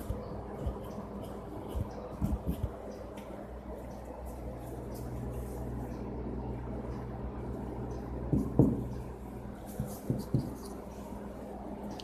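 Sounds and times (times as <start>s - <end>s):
marker scratching on whiteboard: 0.0s - 3.2s, 9.6s - 11.0s
low electrical hum: 0.0s - 12.0s.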